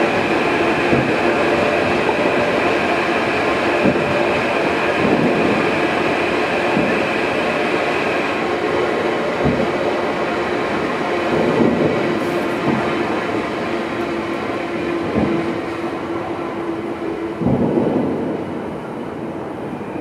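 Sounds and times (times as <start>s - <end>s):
fireworks booms: 9.4s - 9.7s, 17.4s - 18.3s.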